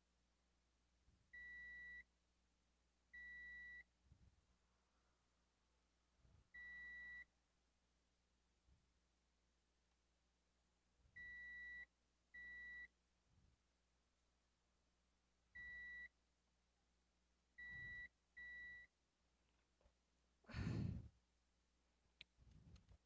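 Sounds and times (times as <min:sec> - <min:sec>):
multimeter continuity beeps: 0:01.3 - 0:02.1, 0:03.2 - 0:03.9, 0:06.6 - 0:07.3, 0:11.2 - 0:12.9, 0:15.6 - 0:16.1, 0:17.6 - 0:18.9.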